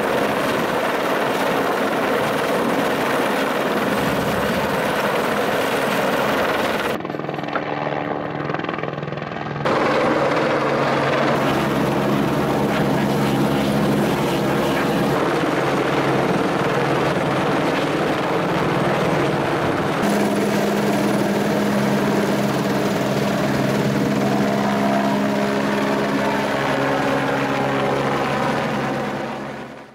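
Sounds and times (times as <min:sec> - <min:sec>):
helicopter flying overhead: 0:00.0 - 0:29.9.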